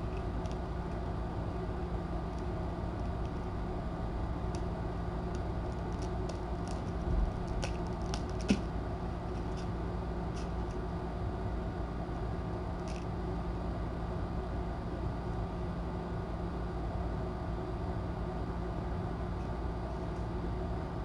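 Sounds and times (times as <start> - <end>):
low room hum: 0.0 - 21.0
kittens scrabbling at fleece bed: 5.9 - 8.7.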